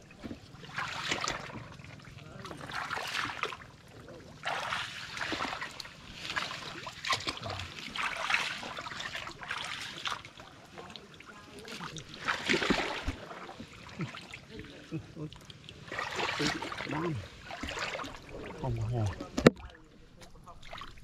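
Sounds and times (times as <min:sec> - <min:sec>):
feet wading through water and mud: 0:00.0 - 0:21.0.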